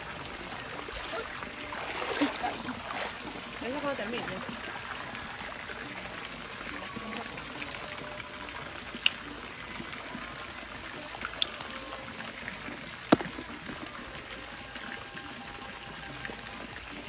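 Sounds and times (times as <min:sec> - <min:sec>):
water trickling: 0:00.0 - 0:17.0.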